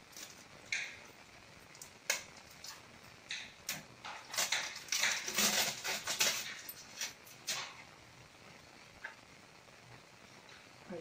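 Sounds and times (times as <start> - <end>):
packaging crinkling: 4.0 - 7.8.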